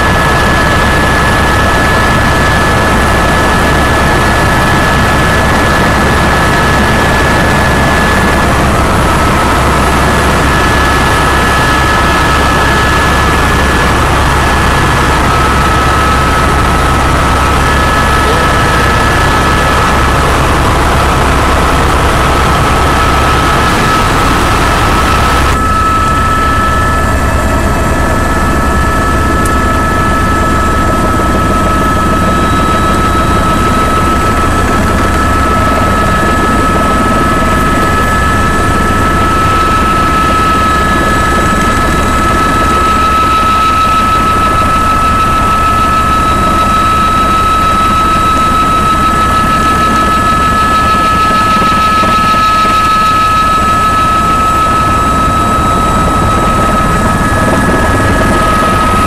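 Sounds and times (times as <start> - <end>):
helicopter drone: 0.0 - 59.0
high whine: 0.0 - 59.0.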